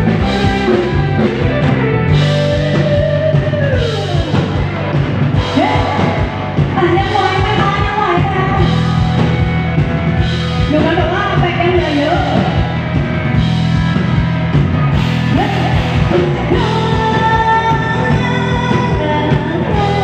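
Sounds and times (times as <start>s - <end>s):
bass guitar: 0.0s - 20.0s
drums: 0.0s - 20.0s
person singing: 5.4s - 8.9s, 15.3s - 20.0s.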